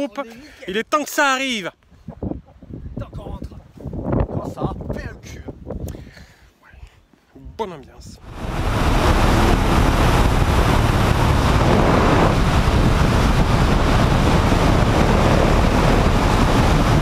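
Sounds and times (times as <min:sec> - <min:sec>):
wind rushing over microphone: 0:01.9 - 0:06.1, 0:08.2 - 0:17.0
motorcycle engine and road noise: 0:08.3 - 0:17.0.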